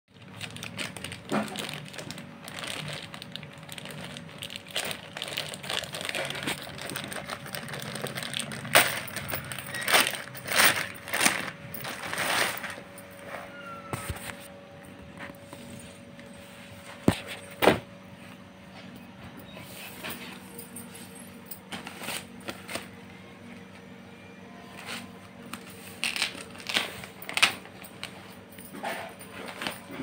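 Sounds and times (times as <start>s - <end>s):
plastic mailer bag crinkling: 0.1s - 13.6s, 24.8s - 30.0s
plastic bag ripping: 0.2s - 12.8s, 24.8s - 27.9s.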